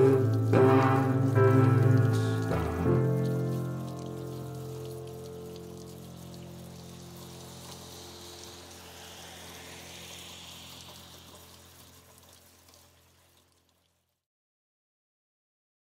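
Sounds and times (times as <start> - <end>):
low held note: 0.0 - 10.7
rain falling: 0.0 - 14.1.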